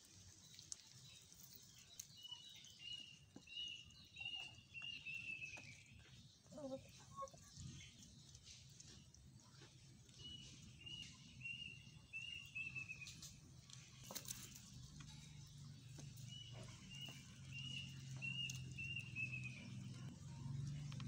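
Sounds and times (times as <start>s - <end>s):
chickens pecking: 0.0s - 21.0s.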